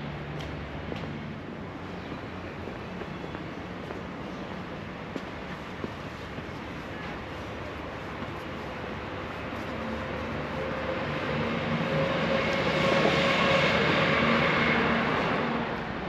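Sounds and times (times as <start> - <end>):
passing vehicle engine hum: 9.0 - 16.0.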